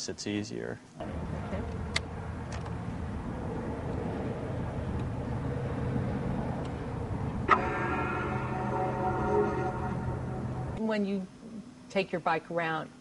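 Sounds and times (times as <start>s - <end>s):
vehicle and road rumble: 1.0s - 10.8s
music: 7.5s - 10.8s.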